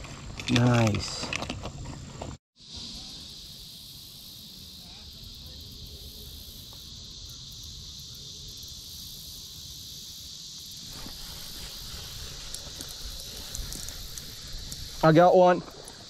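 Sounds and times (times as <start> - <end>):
insects chorus: 0.0 - 16.0.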